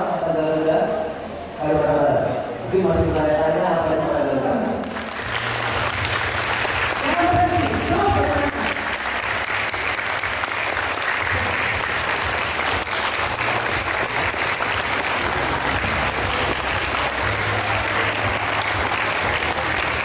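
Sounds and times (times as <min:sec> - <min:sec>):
audience applause: 0:04.8 - 0:20.0.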